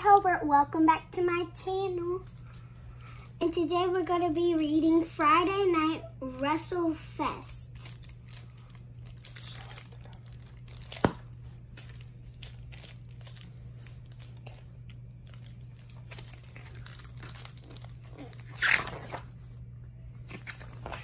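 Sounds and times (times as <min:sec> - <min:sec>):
steady low hum: 0:00.0 - 0:21.0
book pages rustling: 0:07.8 - 0:19.6, 0:20.2 - 0:21.0.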